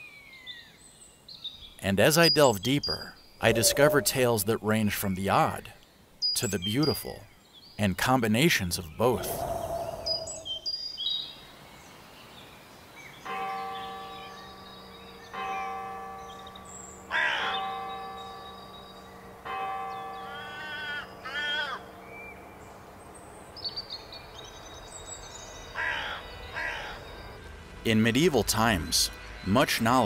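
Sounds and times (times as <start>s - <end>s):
faint high bird chirps: 1.6s - 4.4s, 9.2s - 11.3s
church bell tolling: 13.3s - 22.5s
crow cawing: 17.1s - 17.6s, 20.3s - 21.9s, 25.8s - 27.1s.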